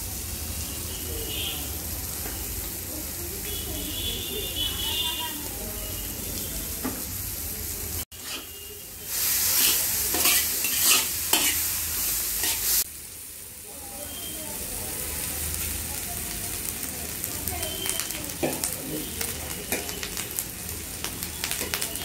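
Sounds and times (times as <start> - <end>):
vegetables sizzling in wok: 0.0 - 22.0
spatula scraping wok: 8.1 - 12.9.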